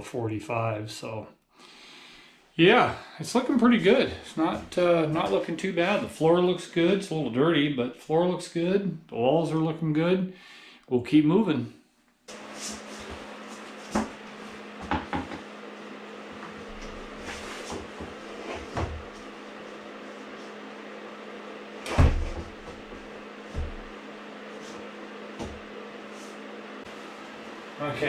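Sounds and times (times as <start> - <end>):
wall panel knocks and thumps: 14.8 - 15.5, 21.8 - 24.0.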